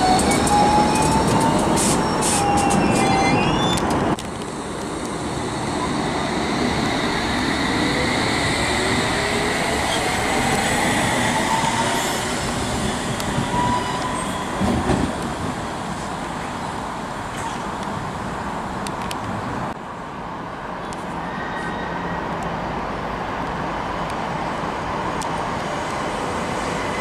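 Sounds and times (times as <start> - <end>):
train wheel squeal: 0.0 - 4.0, 13.3 - 14.8, 21.2 - 22.2
train rumbling: 0.0 - 19.9, 20.9 - 27.0.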